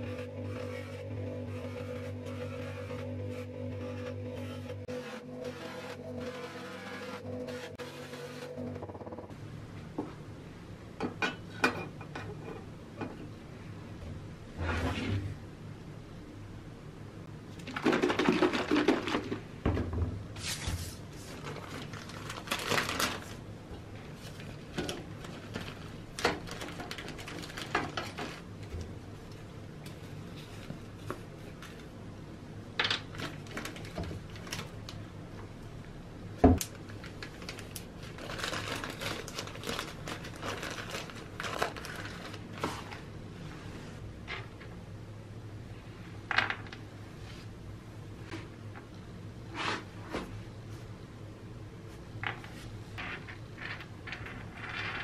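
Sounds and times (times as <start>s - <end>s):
plastic rustling and crinkling: 20.4s - 29.0s, 32.8s - 35.0s, 36.6s - 43.1s.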